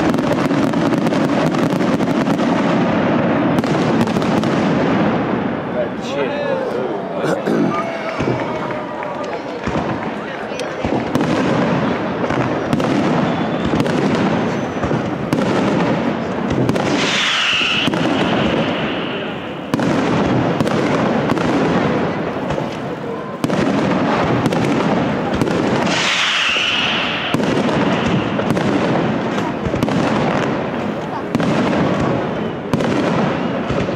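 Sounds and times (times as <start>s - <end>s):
fireworks bangs and crackle: 0.0s - 33.9s
firework whistling shriek: 13.1s - 14.9s, 16.8s - 19.8s, 25.8s - 28.5s.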